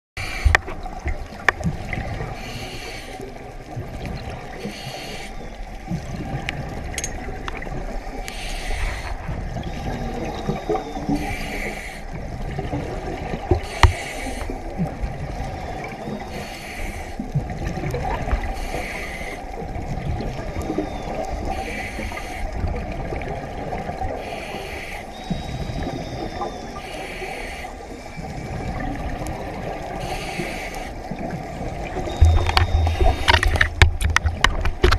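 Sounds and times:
diver breathing through regulator: 2.3s - 3.3s, 4.6s - 5.4s, 8.2s - 10.0s, 11.1s - 12.2s, 13.6s - 14.6s, 16.3s - 17.2s, 18.5s - 19.5s, 24.2s - 28.3s, 30.0s - 31.1s
low underwater rumble: 31.0s - 34.9s.

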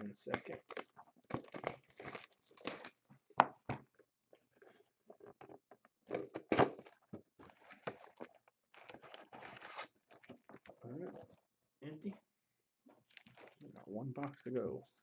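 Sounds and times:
card wrappers rustling and crinkling: 0.2s - 3.0s, 6.1s - 11.4s, 12.9s - 14.6s.

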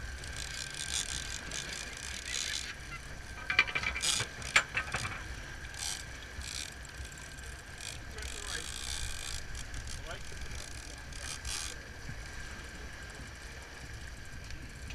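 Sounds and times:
fishing reel ratcheting: 0.0s - 11.9s
wind and sea hiss: 0.0s - 14.9s.

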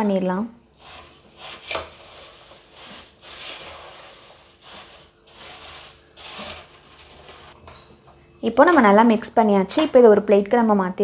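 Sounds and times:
puffed rice rustling in steel pot: 0.7s - 7.6s.

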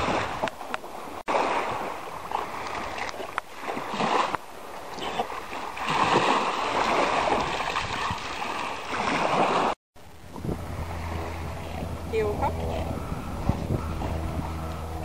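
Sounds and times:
small waves washing on shore: 0.0s - 15.0s
dog splashing through water: 5.2s - 9.8s.

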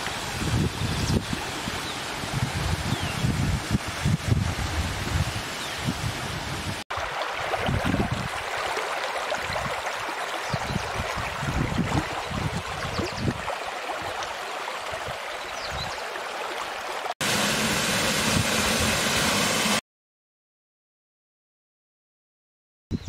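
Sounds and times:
stream running over stones: 0.0s - 19.8s.

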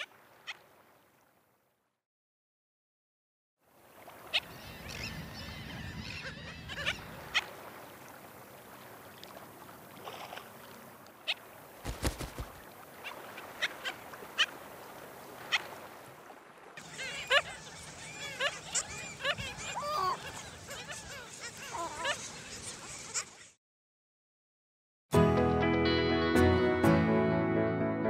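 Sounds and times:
waterbirds squawking: 4.0s - 8.1s, 11.2s - 23.6s.

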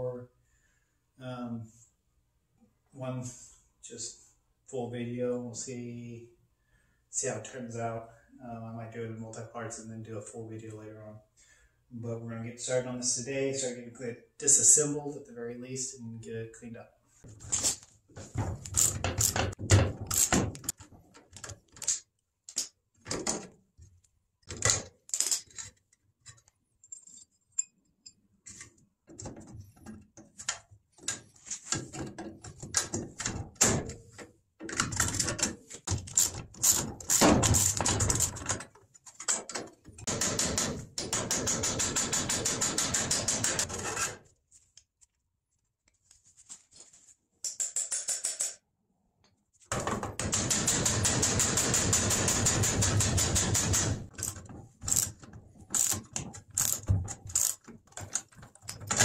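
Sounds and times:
metallic clicks and taps: 47.4s - 48.6s
socket ratchet clicking: 54.1s - 58.3s.

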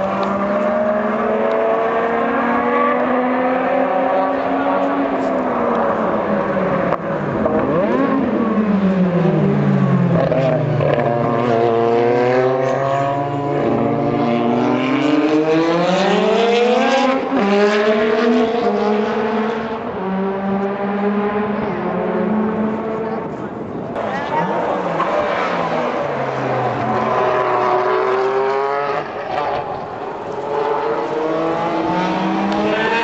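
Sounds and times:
racing car engines: 0.0s - 33.0s.

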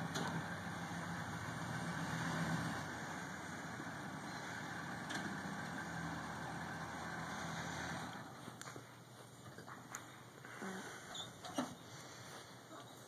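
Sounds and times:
diesel truck engine at low revs: 0.0s - 9.1s.

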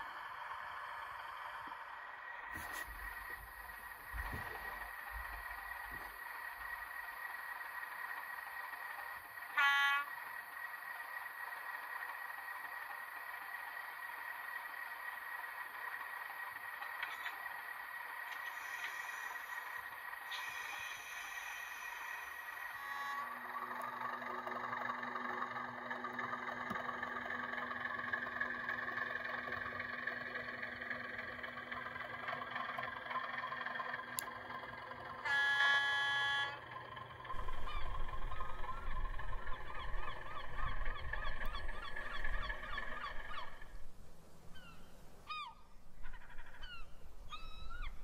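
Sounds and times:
low rumble: 0.0s - 7.2s, 37.0s - 48.0s
mechanical drone: 0.0s - 43.9s
gulls calling: 0.0s - 48.0s
loud horn blast: 9.5s - 10.2s, 22.7s - 23.6s, 35.2s - 36.7s.

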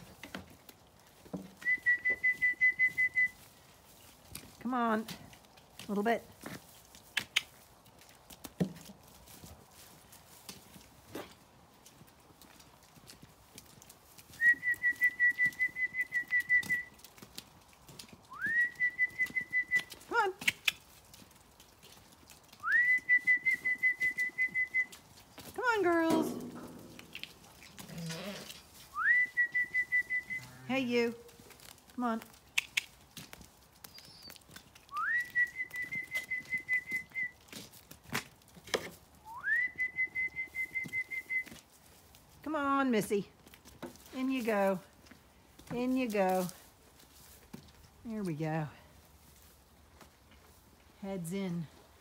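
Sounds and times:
person whistling with flutter: 1.6s - 3.4s, 14.4s - 16.9s, 18.3s - 19.9s, 22.6s - 25.0s, 29.0s - 30.5s, 34.9s - 37.4s, 39.3s - 41.5s.

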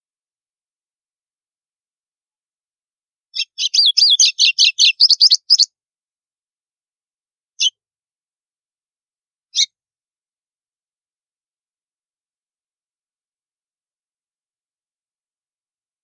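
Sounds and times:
bird song with snapping notes: 3.4s - 5.7s.

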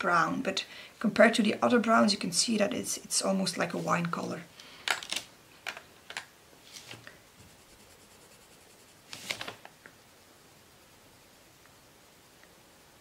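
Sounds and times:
pencil scribbling on paper: 7.4s - 9.1s.

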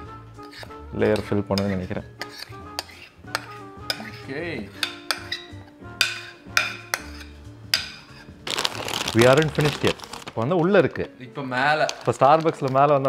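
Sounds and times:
light background music: 0.0s - 13.0s
spoon clinking against dish: 0.4s - 8.3s.

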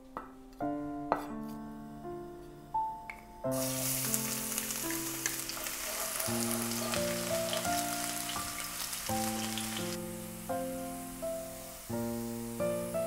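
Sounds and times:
piano background music: 0.0s - 13.0s
garlic sizzling in oil: 3.5s - 13.0s.

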